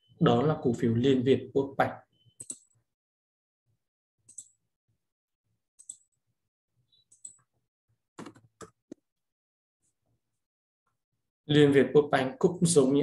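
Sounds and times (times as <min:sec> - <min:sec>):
mouse and keyboard clicks: 0:02.4 - 0:02.7.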